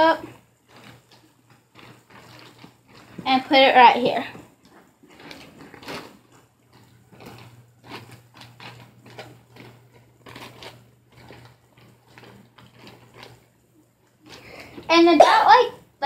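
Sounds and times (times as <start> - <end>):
plastic bag and clothing rustling: 0.0 - 16.0.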